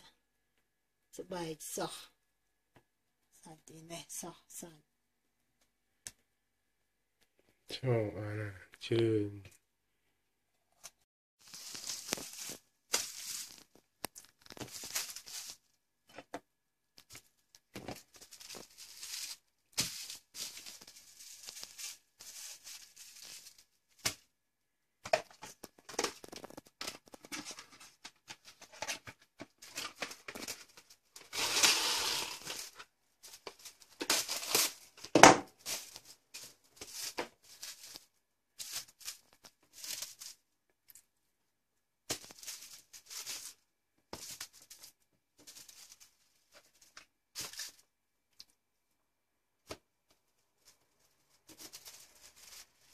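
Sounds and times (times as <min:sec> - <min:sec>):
plastic wrap crinkling: 0:11.4 - 0:16.3, 0:16.9 - 0:24.3, 0:25.1 - 0:41.1, 0:42.1 - 0:48.6, 0:50.3 - 0:52.9.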